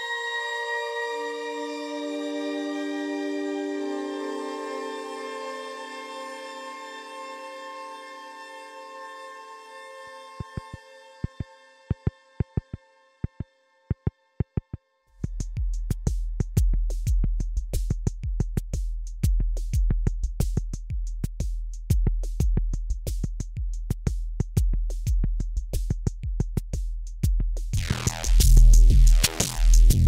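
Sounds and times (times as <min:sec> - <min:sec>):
deep bass drone: 0:27.8 - 0:30.0
dense synth sound: 0:27.8 - 0:30.0.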